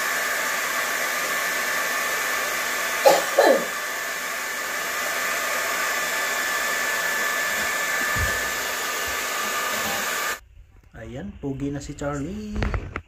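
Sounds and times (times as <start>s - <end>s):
hair dryer blowing: 0.0s - 10.4s
low thump: 8.1s - 8.4s.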